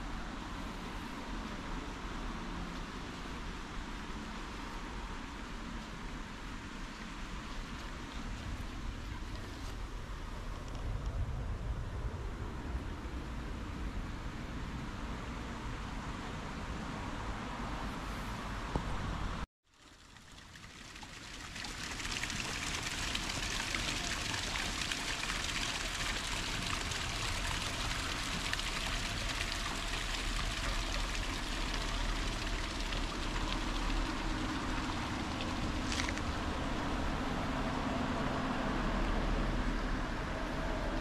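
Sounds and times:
running water rushing: 19.7s - 38.8s.

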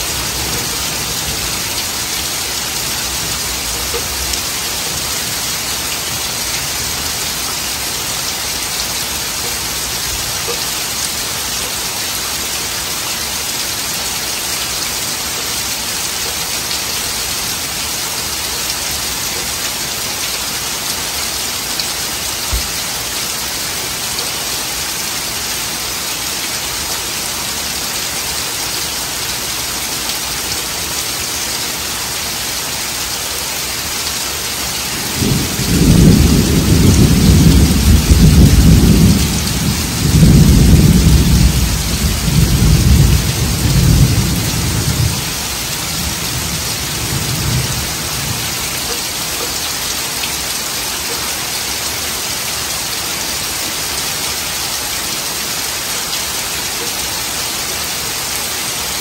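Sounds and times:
heavy rain on foliage: 0.0s - 59.0s
thunder rumbling: 35.0s - 45.2s.

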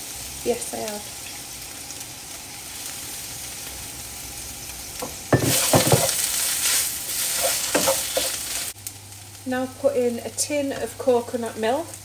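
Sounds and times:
food sizzling in a pan: 0.0s - 12.0s
wooden spoon knocking pan: 5.0s - 6.2s.

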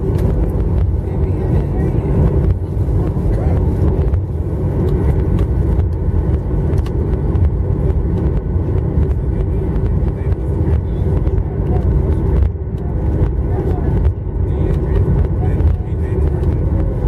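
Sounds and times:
aircraft cabin low rumble: 0.0s - 17.0s.

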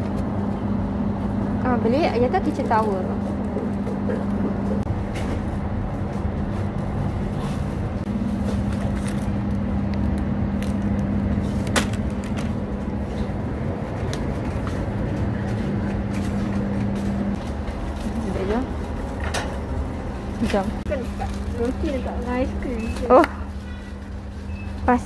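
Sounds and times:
steady low hum: 0.0s - 25.0s
shopping trolley rolling and rattling: 20.4s - 25.0s.

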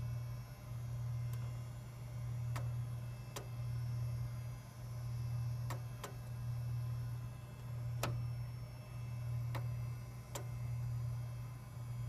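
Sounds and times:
computer low hum: 0.0s - 12.0s
floppy drive clicking: 1.2s - 1.6s, 2.4s - 3.7s, 5.6s - 6.4s, 7.6s - 8.2s, 9.4s - 10.6s.

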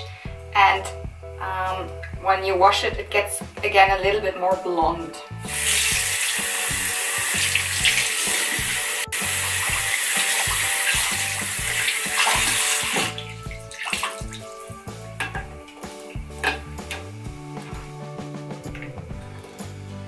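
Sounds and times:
tap water pouring into basin: 5.5s - 17.1s.

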